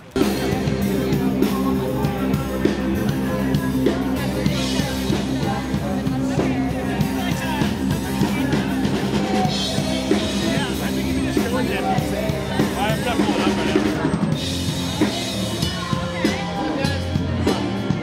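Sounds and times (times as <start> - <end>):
rock music with singing: 0.0 - 18.0.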